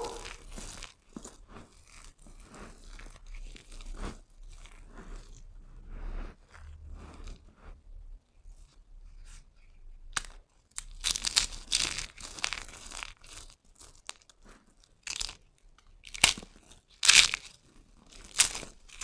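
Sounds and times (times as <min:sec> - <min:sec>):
soap bar crunching and crackling: 0:00.0 - 0:05.5, 0:10.1 - 0:19.0.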